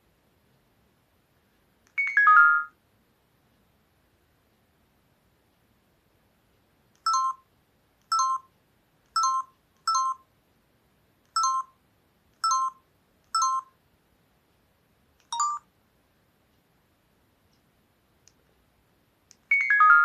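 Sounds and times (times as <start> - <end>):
phone keypad two-tone beeps: 2.0 - 2.7, 7.0 - 7.4, 8.1 - 8.5, 9.2 - 10.3, 11.4 - 11.8, 12.4 - 12.8, 13.4 - 13.7, 15.3 - 15.7.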